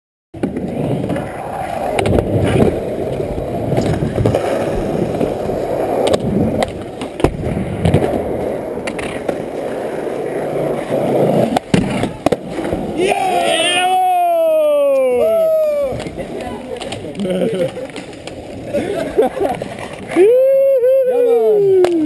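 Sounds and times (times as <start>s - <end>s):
skateboard tail clacks: 0.4s - 13.0s, 14.9s - 20.2s
skateboard wheels rumbling: 0.4s - 22.0s.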